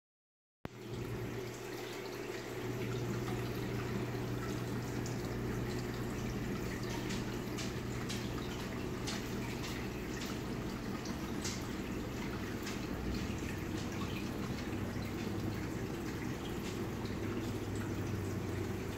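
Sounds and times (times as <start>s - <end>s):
water drips: 0.7s - 18.9s
water splashing and trickling: 0.7s - 18.9s.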